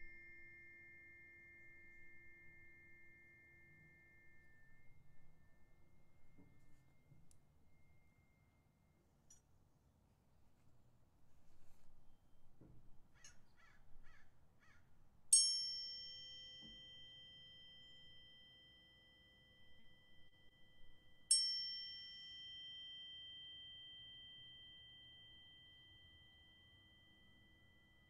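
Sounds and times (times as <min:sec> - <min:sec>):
tuning fork ringing: 0:00.0 - 0:09.7, 0:15.3 - 0:28.0.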